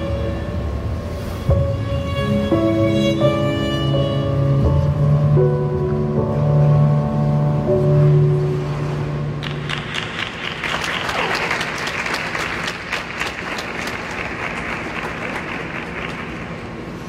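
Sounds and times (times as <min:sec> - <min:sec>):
audience applauding: 0:09.4 - 0:16.8.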